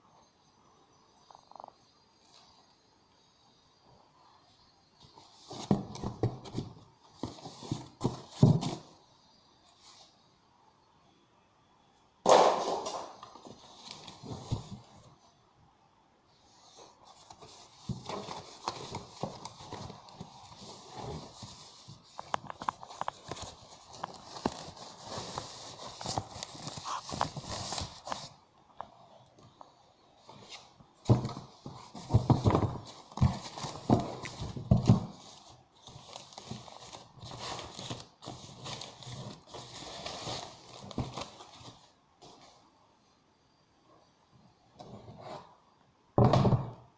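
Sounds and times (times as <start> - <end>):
cardboard bumping and scraping: 5.4 - 8.9, 17.2 - 28.4, 30.4 - 41.9
packing sheet rustling: 17.1 - 28.4, 31.2 - 42.4.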